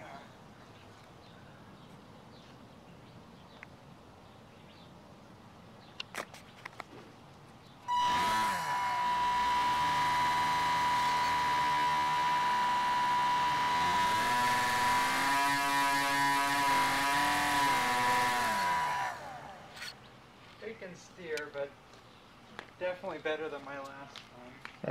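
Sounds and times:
electric propeller motor whining: 7.9 - 20.0.

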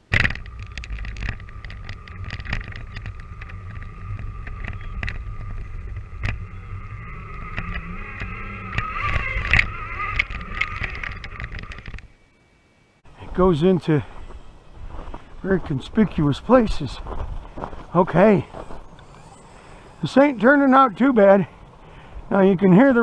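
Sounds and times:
toy truck electric motor whine: 0.0 - 12.3, 18.5 - 21.6.

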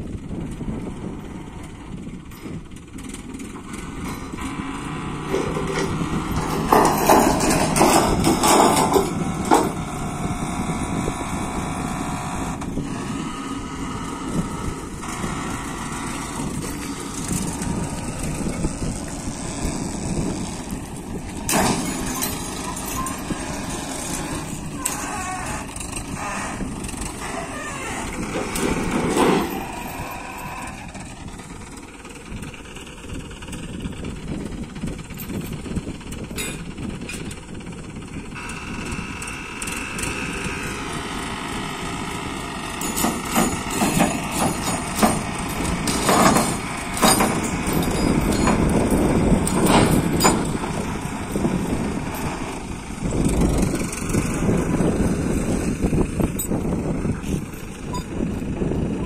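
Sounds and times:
diesel engine running: 0.0 - 59.0
sharp metal knocks: 5.2 - 10.2, 21.4 - 30.8, 42.7 - 52.5.

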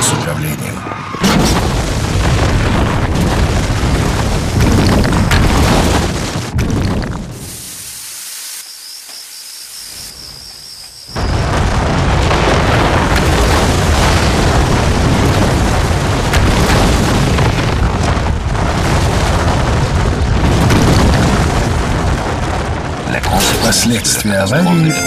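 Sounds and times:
loud crash of tower collapsing: 1.1 - 7.4, 11.2 - 25.0
rumble of falling masonry: 1.2 - 7.4, 11.2 - 24.2.

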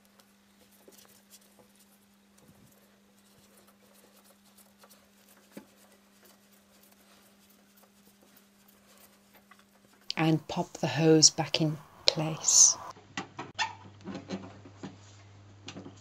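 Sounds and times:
steady low hum: 10.0 - 13.0.

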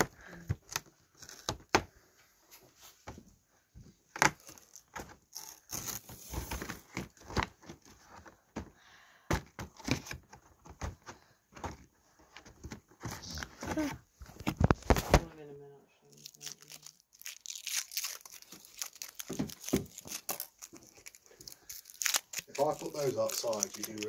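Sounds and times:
thin cardboard tearing: 4.2 - 6.8, 16.3 - 24.0
paper wrapper crinkling: 16.1 - 24.0.

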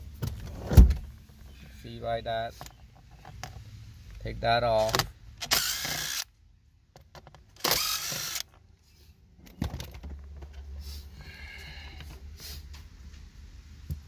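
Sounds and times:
impact driver running: 7.6 - 8.4.

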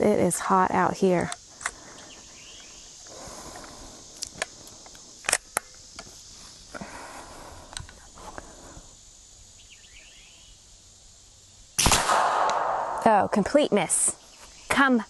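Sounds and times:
insects buzzing: 0.0 - 15.0
air rifle cocking clicks: 3.6 - 6.1, 11.8 - 13.0.

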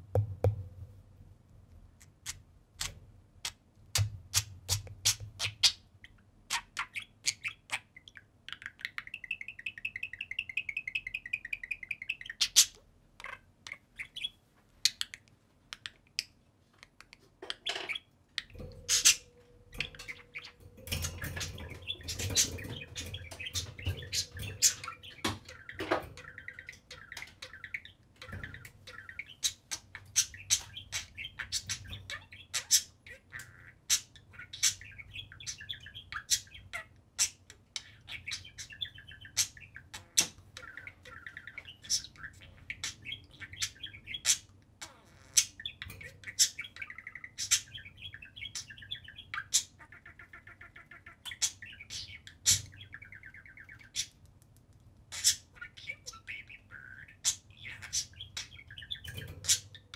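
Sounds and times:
budgerigars chattering: 17.5 - 54.2, 55.1 - 59.9.

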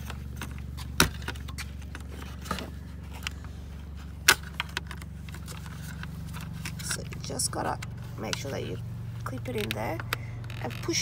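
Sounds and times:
steady low hum: 0.0 - 11.0
sharp plastic clicks: 4.2 - 11.0.

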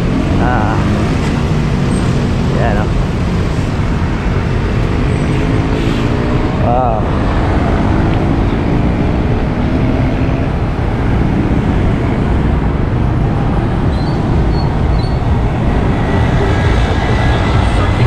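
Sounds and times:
nearby engine hum: 0.0 - 18.0
road traffic: 0.0 - 18.0
heavy low rumble: 6.1 - 18.0.

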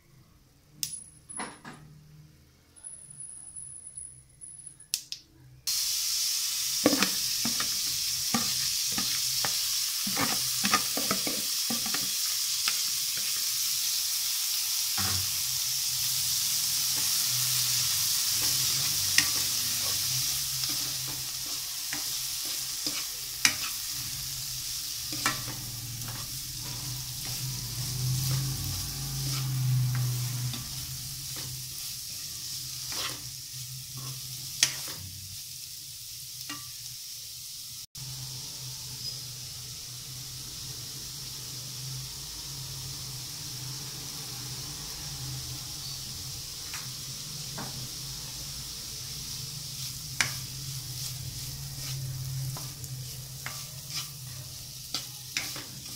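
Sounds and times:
beetroot sizzling in oil: 5.7 - 55.9
spatula clicking and scraping: 53.4 - 55.9.

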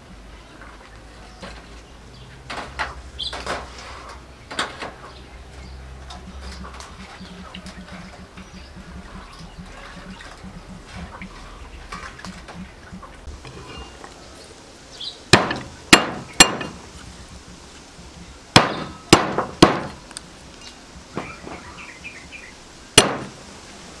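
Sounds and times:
cleaver striking chopping board: 15.4 - 16.8, 18.6 - 20.0, 23.0 - 23.4.

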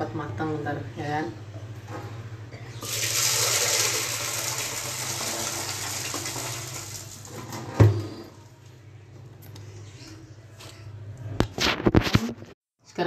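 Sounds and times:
tap water running: 2.8 - 8.0.

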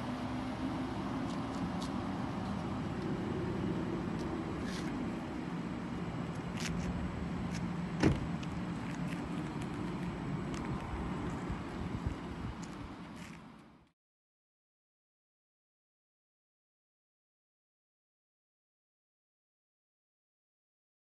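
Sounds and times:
sharp thump: 8.0 - 8.3.

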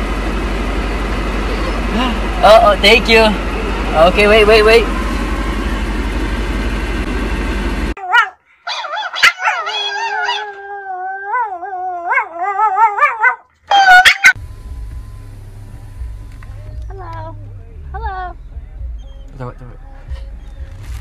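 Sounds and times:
dog howling: 8.0 - 14.4
dog yipping: 8.0 - 14.4
car interior rumble: 14.3 - 21.0.

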